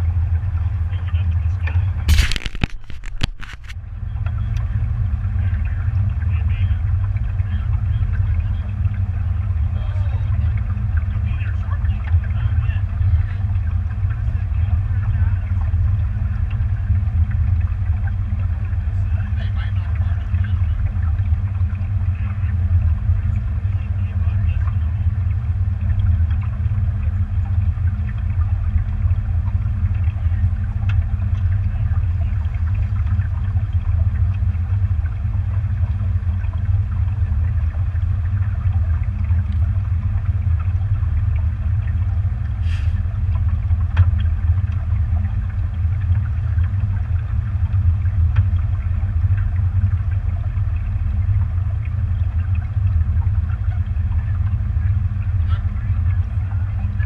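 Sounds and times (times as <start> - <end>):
motorboat engine rumbling: 0.0 - 57.0.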